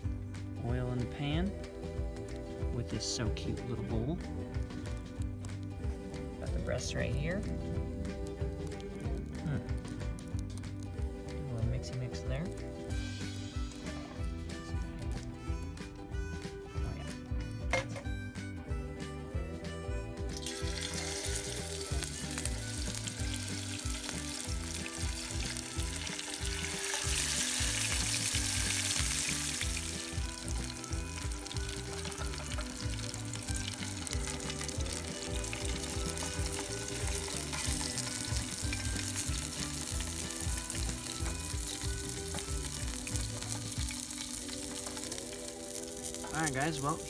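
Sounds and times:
background music: 0.0s - 47.0s
meat sizzling in hot oil: 12.2s - 14.4s, 20.2s - 47.0s.

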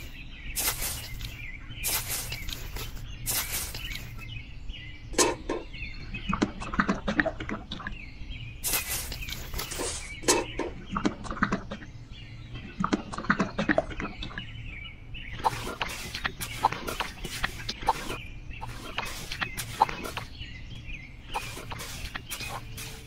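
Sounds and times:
metal tool scraping wet mortar: 15.4s - 20.3s, 21.3s - 23.0s.

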